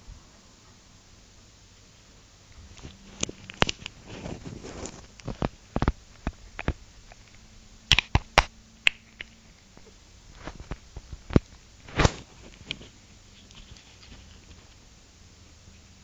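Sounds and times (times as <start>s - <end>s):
rustling against microphone: 2.6s - 7.3s, 9.6s - 14.8s
sharp clicks and taps: 5.2s - 9.9s.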